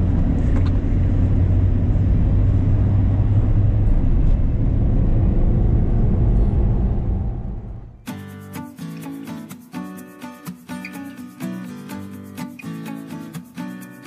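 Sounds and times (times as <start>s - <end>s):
engine and road noise rumble: 0.0s - 8.1s.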